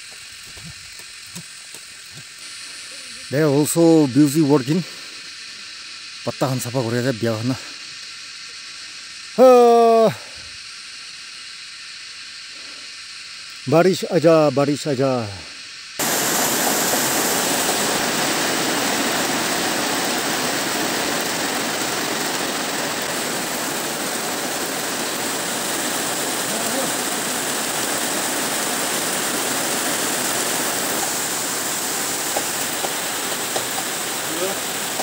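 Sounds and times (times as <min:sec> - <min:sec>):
steady rain falling: 0:00.0 - 0:35.0.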